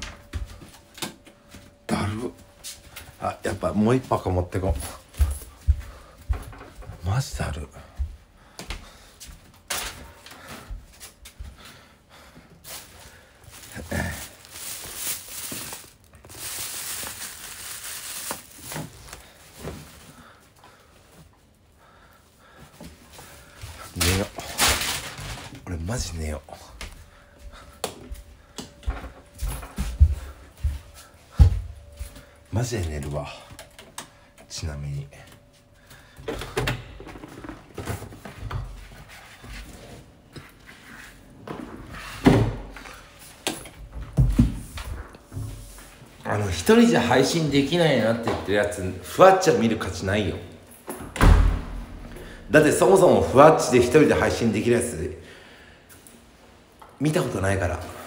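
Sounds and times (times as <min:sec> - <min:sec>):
rustling and crinkling: 0:12.4 - 0:21.7, 0:22.6 - 0:32.4.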